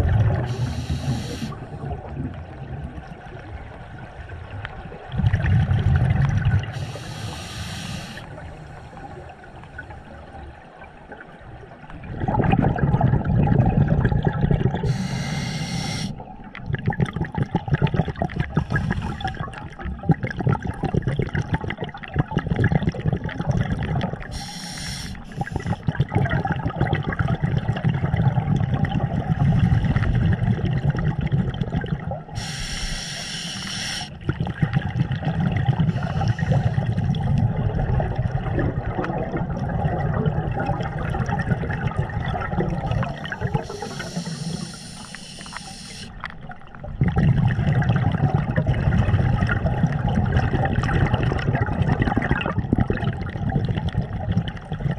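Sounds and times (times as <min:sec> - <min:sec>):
exhaled bubbles bubbling underwater: 0:00.0 - 0:54.9
scuba regulator hissing inhale: 0:00.4 - 0:01.7, 0:06.7 - 0:09.3, 0:14.8 - 0:16.2, 0:18.6 - 0:19.4, 0:24.3 - 0:25.9, 0:32.4 - 0:34.2, 0:35.9 - 0:36.8, 0:43.2 - 0:46.2.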